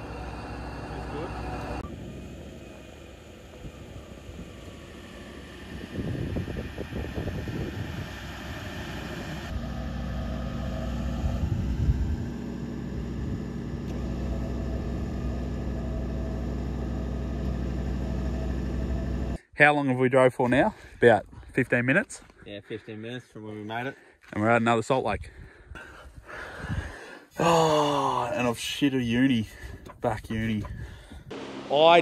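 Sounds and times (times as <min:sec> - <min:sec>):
vehicle engine rumbling: 0:00.0 - 0:19.4, 0:27.5 - 0:32.0.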